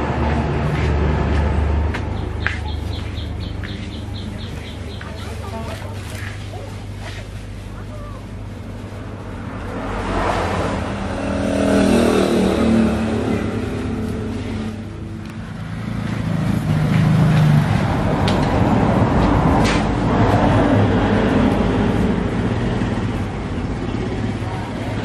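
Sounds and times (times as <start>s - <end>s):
vehicle engine passing: 0.0s - 25.0s.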